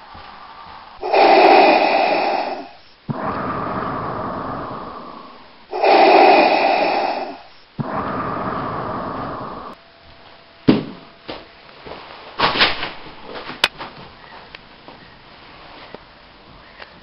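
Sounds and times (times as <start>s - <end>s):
heavy human breathing: 0.0s - 9.8s.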